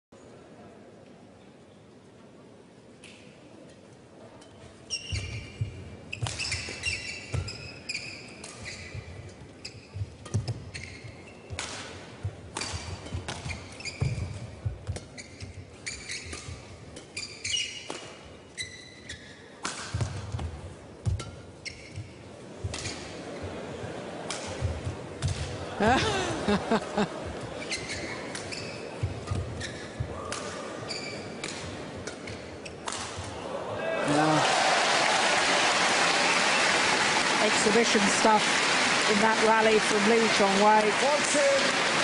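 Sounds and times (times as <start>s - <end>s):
shoes squeaking on court: 4.7s - 25.7s, 27.1s - 33.4s
racket striking shuttlecock: 5.0s - 18.2s, 19.6s - 23.2s, 24.2s - 25.6s, 27.8s - 33.4s.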